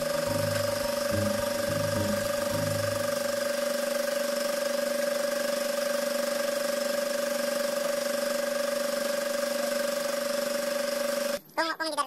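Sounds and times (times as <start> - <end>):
steady hum: 0.0 - 4.0.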